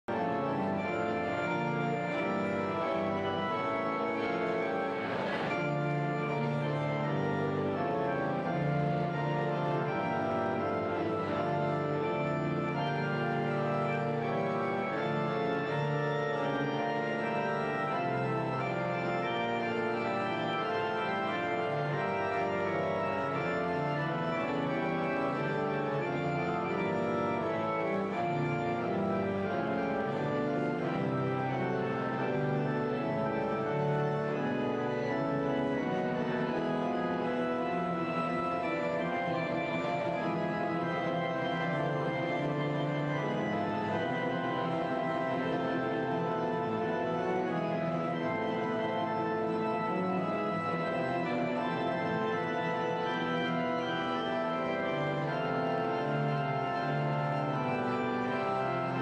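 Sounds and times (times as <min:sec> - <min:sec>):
organ chords: 0:00.0 - 0:59.0.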